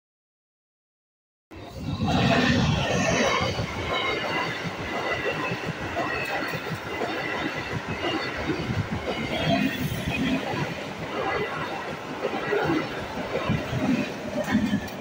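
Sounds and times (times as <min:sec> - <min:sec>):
train rushing past: 0:01.6 - 0:15.0
wheels clattering on rails: 0:01.6 - 0:15.0.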